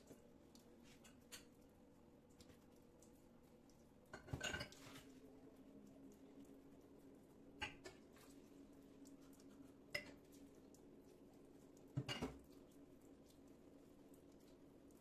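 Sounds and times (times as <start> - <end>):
glassware and mug clinking in sink: 4.1 - 4.9, 7.6 - 8.0, 12.0 - 12.4.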